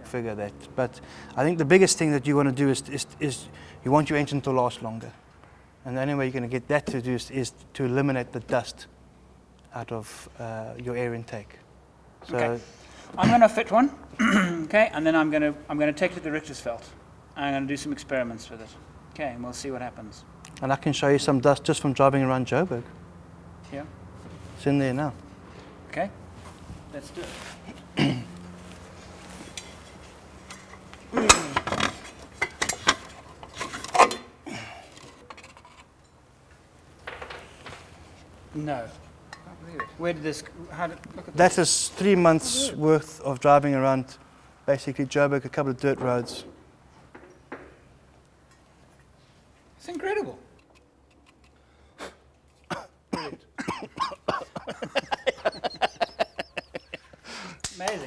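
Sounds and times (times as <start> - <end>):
man laughing: 53.6 - 57.6.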